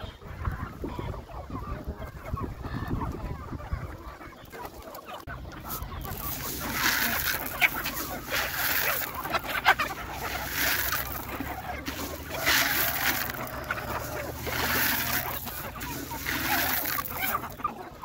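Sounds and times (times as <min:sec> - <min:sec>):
chickens clucking: 0:00.0 - 0:18.0.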